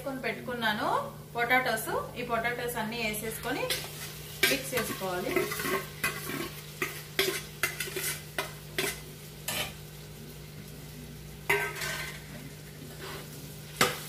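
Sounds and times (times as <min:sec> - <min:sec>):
onions sizzling: 0:00.0 - 0:14.0
metal spoon clinking and scraping: 0:04.4 - 0:09.8, 0:11.5 - 0:12.2.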